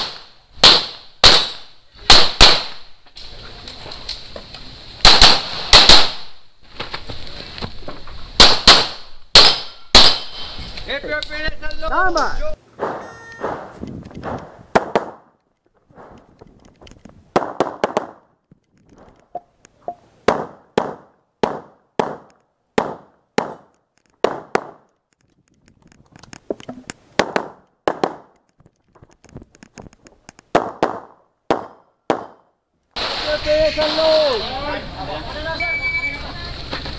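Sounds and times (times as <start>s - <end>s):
pistol shots: 0.0s - 2.9s, 5.0s - 6.4s, 8.4s - 10.4s, 14.3s - 15.3s, 20.3s - 24.9s, 27.2s - 28.4s, 30.5s - 33.3s.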